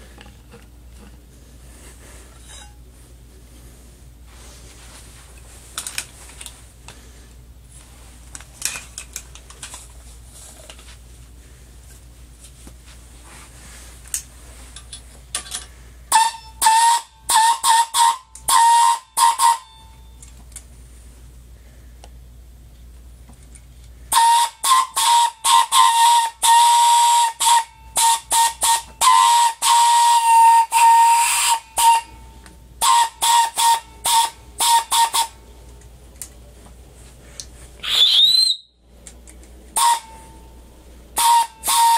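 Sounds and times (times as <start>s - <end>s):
faint low hum: 0.0s - 17.4s, 19.6s - 24.3s, 35.3s - 37.9s, 38.6s - 41.2s
air horn blasts: 16.1s - 20.2s, 24.1s - 35.4s, 39.8s - 40.5s, 41.2s - 41.9s.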